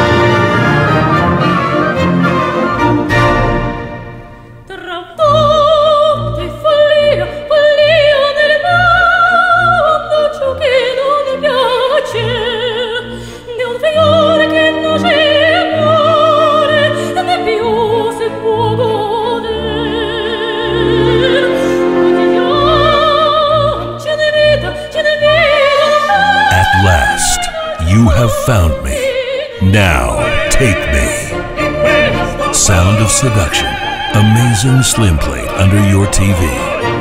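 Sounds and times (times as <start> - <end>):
orchestra accompaniment: 0.0 - 4.6, 29.8 - 37.0
operatic singing: 0.0 - 37.0.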